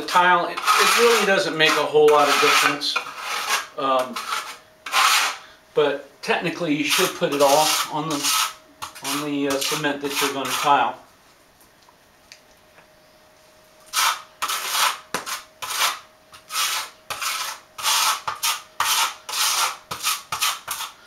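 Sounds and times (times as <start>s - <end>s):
trowel scraping adhesive on floor: 0.1s - 5.4s, 6.9s - 10.7s, 13.9s - 21.0s.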